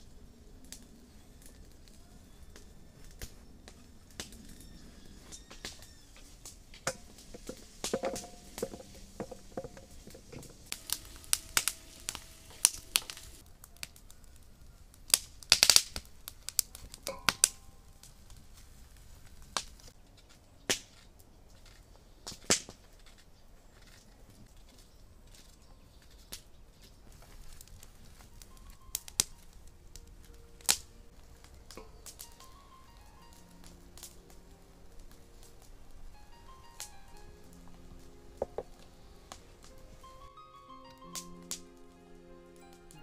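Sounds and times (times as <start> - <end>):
pieces dropping into metal bowl: 6.9 - 10.6.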